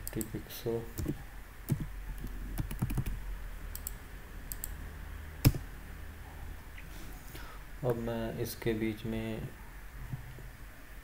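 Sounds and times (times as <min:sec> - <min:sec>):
keyboard typing: 0:01.0 - 0:04.8.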